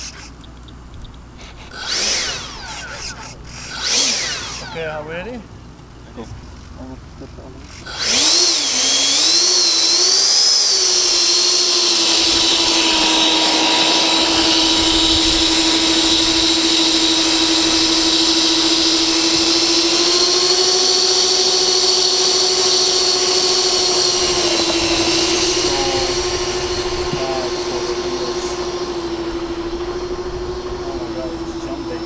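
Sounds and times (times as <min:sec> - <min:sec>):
electric ducted fans whining: 0:00.0 - 0:32.0.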